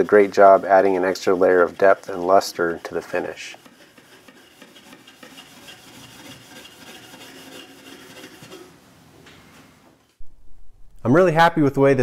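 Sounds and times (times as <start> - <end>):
brush scrubbing waxed wood: 0.0 - 8.8.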